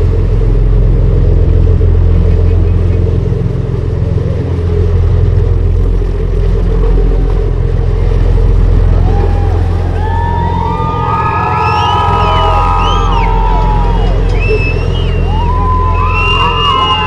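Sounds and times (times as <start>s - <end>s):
low rumble with deep hum: 0.0s - 17.0s
high sliding whistle tones: 10.0s - 17.0s.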